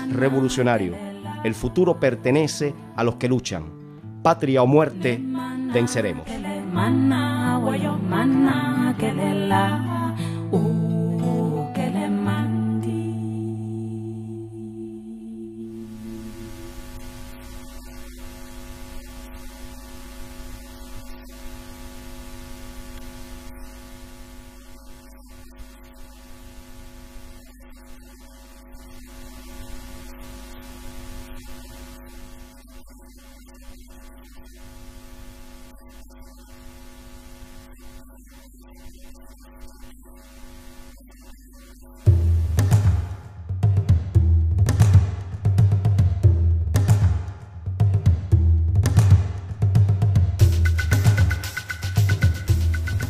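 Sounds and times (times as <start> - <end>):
buzzing electrical hum: 12.2 - 53.0.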